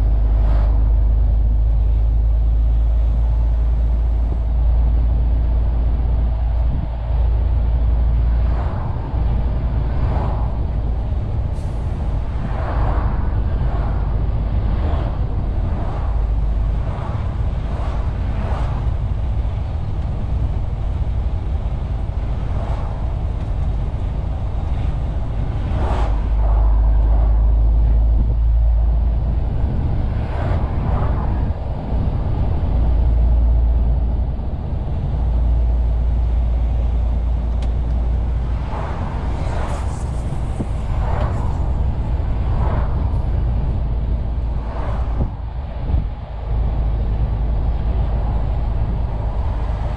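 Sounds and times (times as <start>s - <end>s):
rushes of higher noise: 0.0s - 49.9s
truck diesel engine drone: 0.0s - 49.9s.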